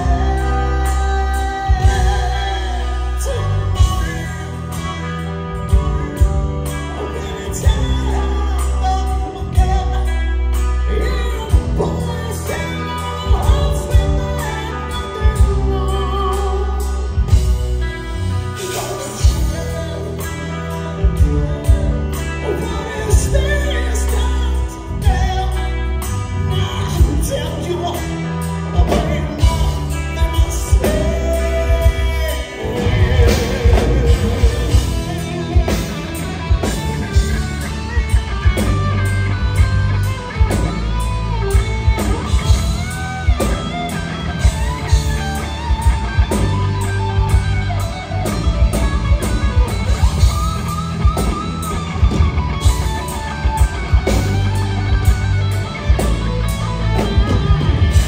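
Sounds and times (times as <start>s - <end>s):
lead vocals singing: 0.0s - 5.0s, 5.7s - 39.0s
heavy metal band playing live: 0.0s - 58.0s.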